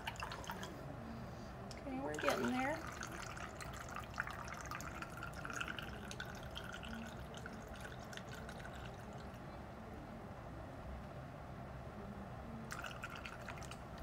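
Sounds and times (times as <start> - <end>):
water trickling and dripping: 0.0 - 0.7, 1.8 - 9.4.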